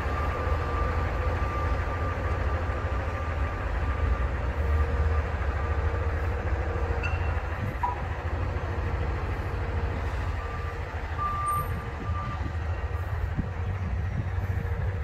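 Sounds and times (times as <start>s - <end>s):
distant reversing alarm beeping: 0.0s - 8.2s, 9.9s - 13.0s.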